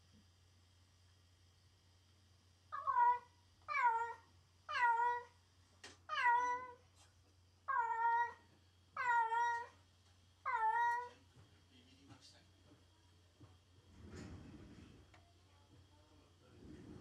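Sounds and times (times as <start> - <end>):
cat meowing: 2.8 - 5.3, 6.1 - 6.8, 7.7 - 8.4, 9.0 - 9.8, 10.5 - 11.1.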